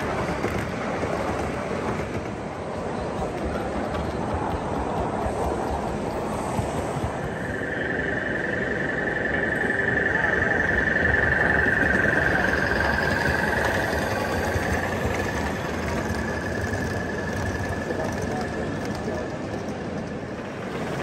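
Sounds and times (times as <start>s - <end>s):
model train wheels rumbling on rails: 0.0s - 21.0s
high-pitched whine: 6.9s - 19.3s.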